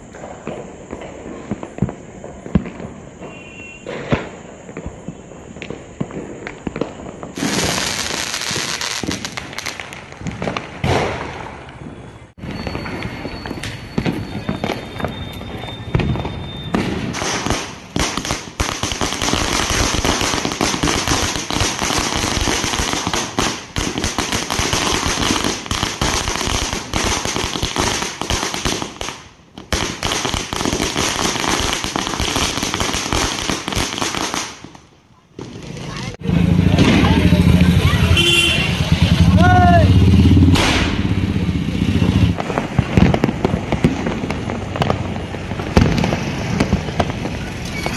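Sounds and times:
firecrackers banging: 0.0s - 47.9s
thin high whistle: 3.2s - 4.0s, 11.9s - 17.0s.

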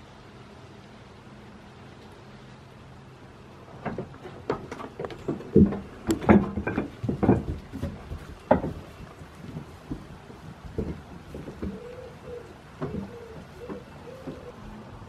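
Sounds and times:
irregular knocks and thumps: 3.8s - 14.7s.

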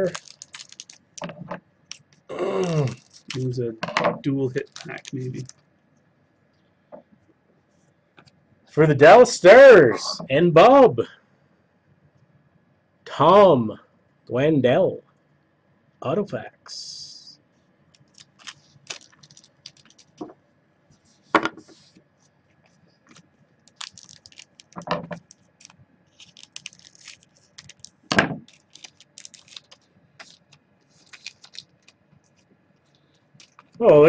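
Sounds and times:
cards clicking and rustling: 0.0s - 3.5s, 4.6s - 5.5s, 18.0s - 20.3s, 23.1s - 32.5s, 33.4s - 33.8s.

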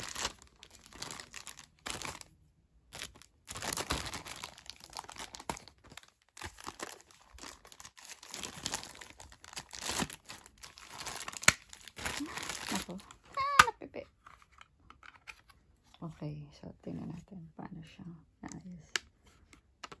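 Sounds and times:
plastic bag crinkling: 0.0s - 13.8s.

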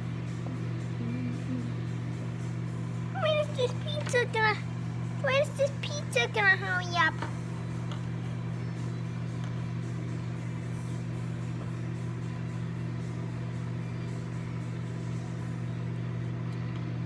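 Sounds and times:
microwave oven humming: 0.0s - 17.0s.

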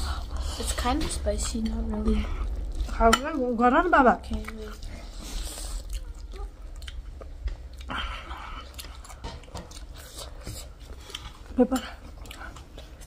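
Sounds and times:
wet chewing: 4.2s - 13.0s.

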